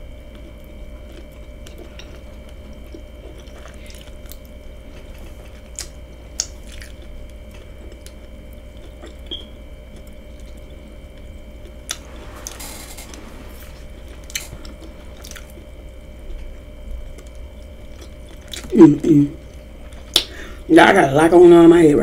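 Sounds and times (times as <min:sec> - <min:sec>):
faint steady hum: 0:00.0 - 0:22.0
person chewing food: 0:00.1 - 0:18.8, 0:19.4 - 0:20.4
wet mouth clicks: 0:20.1 - 0:20.4.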